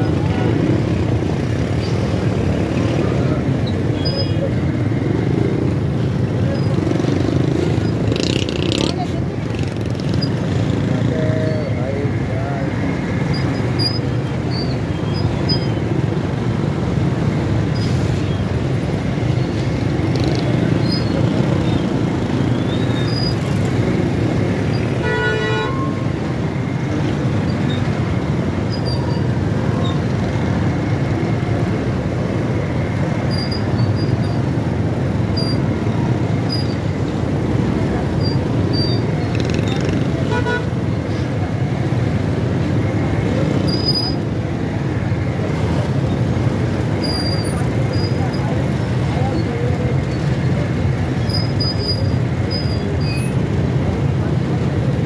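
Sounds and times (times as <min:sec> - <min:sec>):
vehicle engine and road noise: 0:00.0 - 0:55.0
vehicle horn honking: 0:25.0 - 0:26.1, 0:40.3 - 0:40.7.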